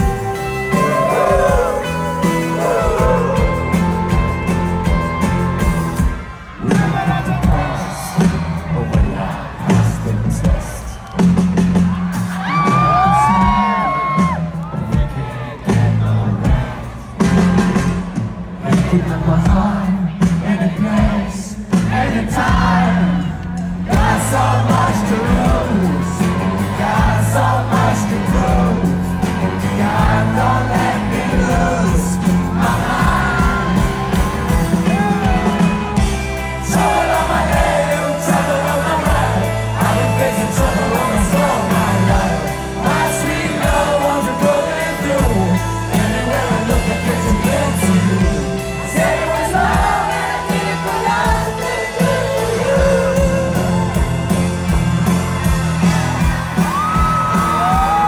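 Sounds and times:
person singing: 0.0 - 4.3, 22.4 - 54.5
live rock band: 0.0 - 58.0.

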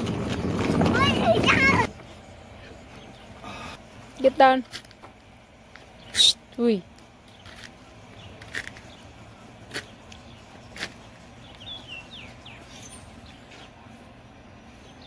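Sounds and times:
faint outdoor hum: 0.0 - 15.0
bird chirps: 9.8 - 13.8.

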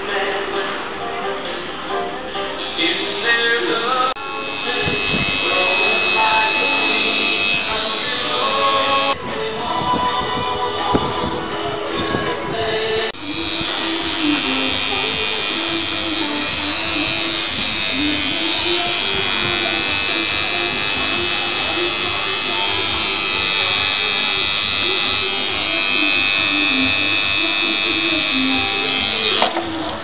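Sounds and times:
tattoo machine buzzing: 2.6 - 9.2, 13.2 - 29.5.

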